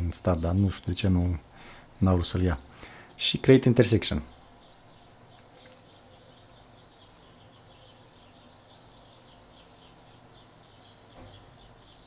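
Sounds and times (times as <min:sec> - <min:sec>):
faint steady hum: 0:00.0 - 0:12.0
high bird chirps: 0:04.2 - 0:12.0.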